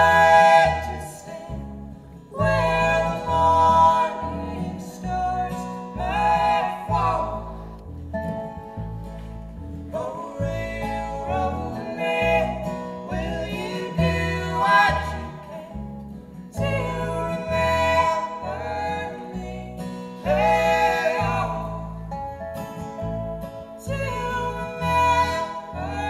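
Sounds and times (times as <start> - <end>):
person singing: 0.0 - 1.6
plucked upright bass: 0.0 - 26.0
strummed acoustic guitars: 0.0 - 26.0.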